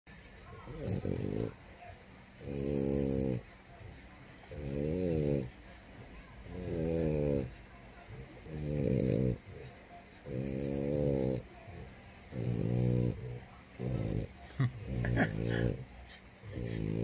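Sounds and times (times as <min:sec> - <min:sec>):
dog snoring: 0:00.6 - 0:01.6, 0:02.4 - 0:03.5, 0:04.4 - 0:05.5, 0:06.4 - 0:07.5, 0:08.4 - 0:09.6, 0:10.2 - 0:15.8, 0:16.5 - 0:17.0.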